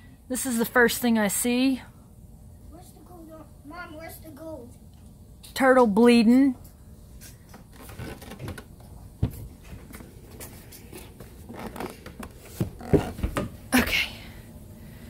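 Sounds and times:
knocks and thumps on ladder: 7.6s - 10.2s, 11.2s - 13.6s.

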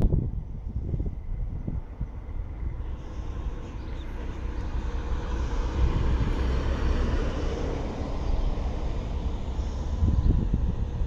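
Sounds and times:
low vehicle rumble: 0.0s - 11.0s.

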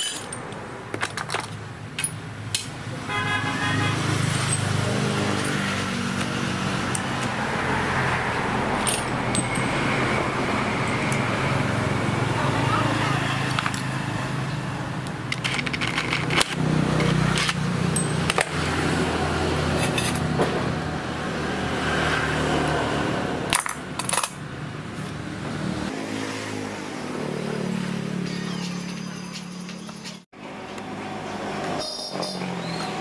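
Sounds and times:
metal parts clinking in steel bowl: 0.0s - 2.7s, 8.8s - 9.7s, 15.3s - 18.5s, 19.8s - 20.3s, 23.5s - 24.4s.

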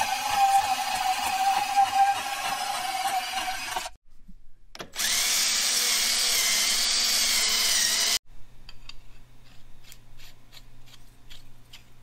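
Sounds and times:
cordless drill grinding steel: 0.0s - 4.0s, 5.0s - 8.2s.

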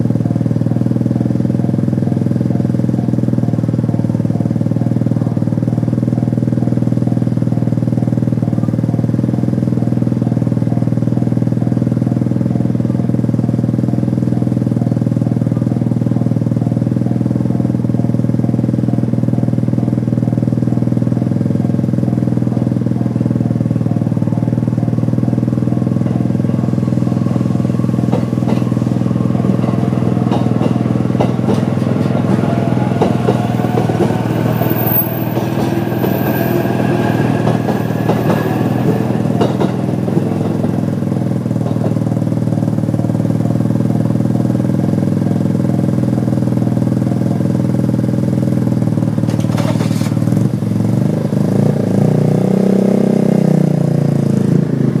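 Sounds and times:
train rising whine: 0.0s - 52.4s
engine sound: 0.0s - 55.0s
level crossing alarm bell ringing: 20.7s - 41.5s
train wheel clicks: 28.0s - 42.0s.

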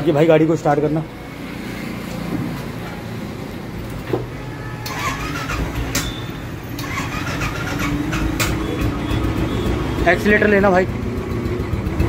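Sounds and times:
motorcycle engine idling: 6.8s - 12.0s.

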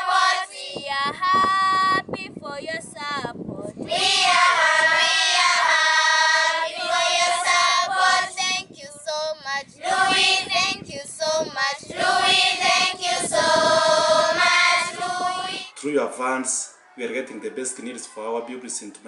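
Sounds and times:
children singing in unison: 0.0s - 0.8s, 3.8s - 15.7s.

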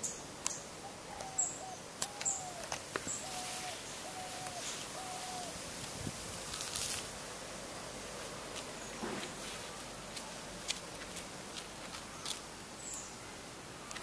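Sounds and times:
bird hooting: 0.8s - 5.7s.

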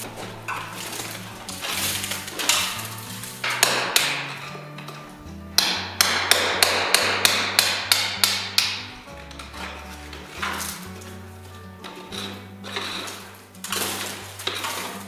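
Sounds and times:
background music: 0.0s - 15.0s
scraping wood: 0.0s - 15.0s
chisel chopping wood: 1.6s - 9.8s.

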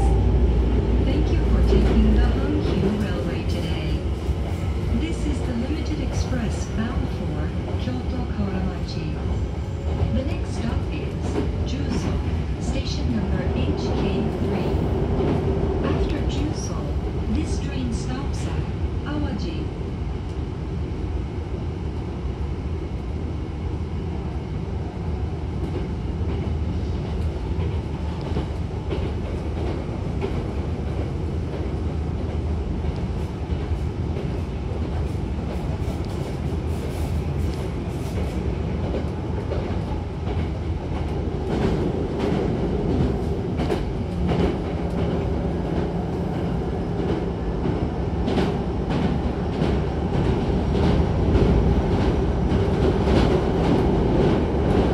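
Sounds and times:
train wheels rumbling on rails: 0.0s - 20.5s, 24.0s - 54.9s
rail joint clicks: 25.6s - 54.9s.

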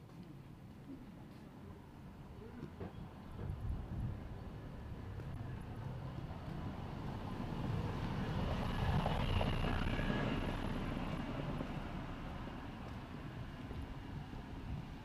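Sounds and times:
motor vehicle passing: 6.7s - 12.8s.

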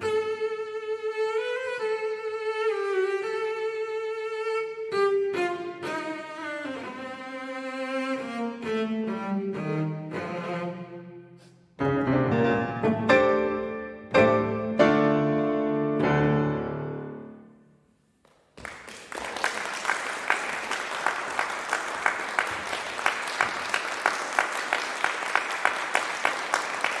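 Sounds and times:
cello and piano chords: 0.0s - 17.4s
audience applause: 18.6s - 27.0s.

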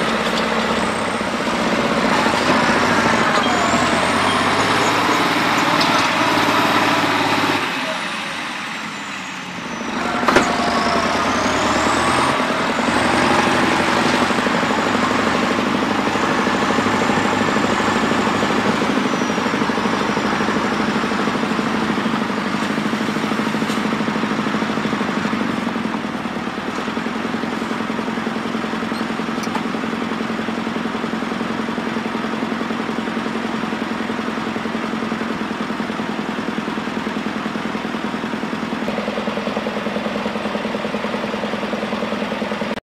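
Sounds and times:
tractor diesel engine revving: 0.0s - 42.8s.

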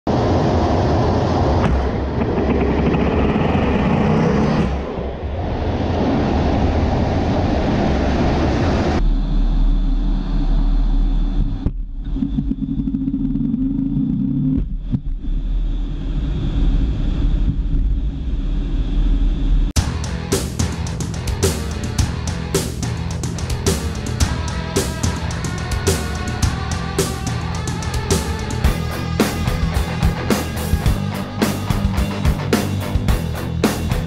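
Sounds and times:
jet engine and air rush: 0.1s - 11.8s, 15.2s - 34.0s.

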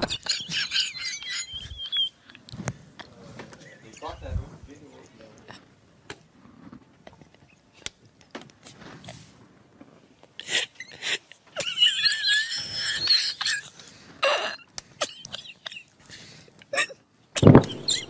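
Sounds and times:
man stifling laughter: 0.0s - 2.1s, 11.1s - 13.8s
soft breaths: 1.6s - 5.6s, 16.0s - 16.6s.

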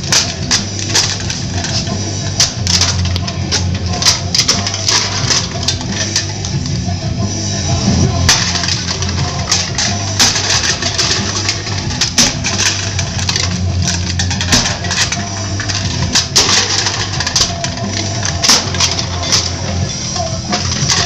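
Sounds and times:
aluminum cans clanking on concrete: 0.0s - 6.6s, 8.2s - 19.8s, 20.4s - 21.0s
rock music: 0.0s - 21.0s.

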